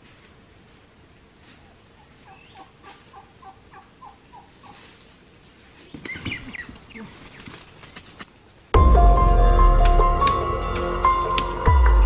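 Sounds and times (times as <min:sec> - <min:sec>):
turkey calling: 0:01.7 - 0:04.9.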